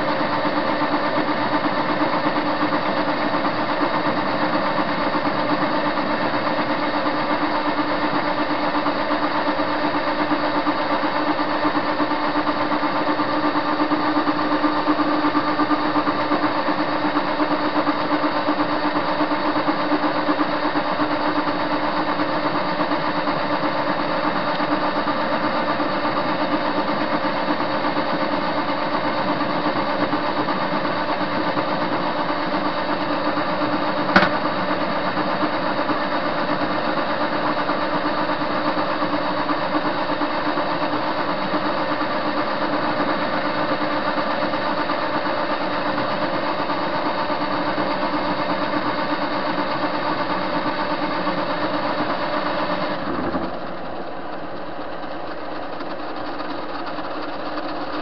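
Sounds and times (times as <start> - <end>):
lathe motor whining: 0.0 - 58.0
sharp click: 34.2 - 34.4.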